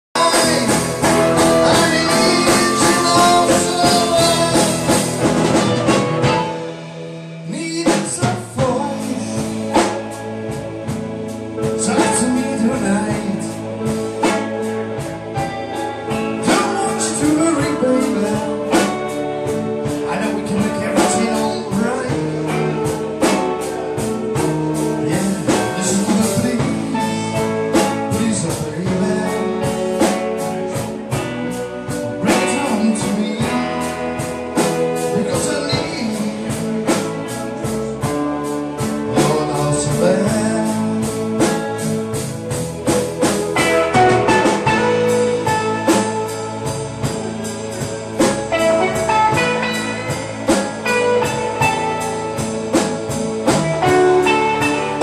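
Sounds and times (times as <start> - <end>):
man singing: 0.1 - 5.8, 7.4 - 10.3, 11.6 - 42.6
blues band playing: 0.1 - 55.0
drum kit: 0.1 - 55.0.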